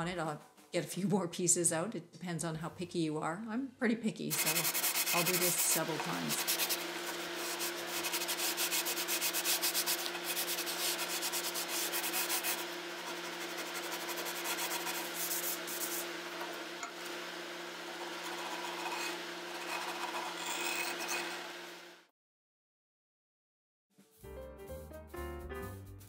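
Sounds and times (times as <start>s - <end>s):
steady low hum: 4.3s - 21.4s
hand sanding wood: 4.3s - 21.6s.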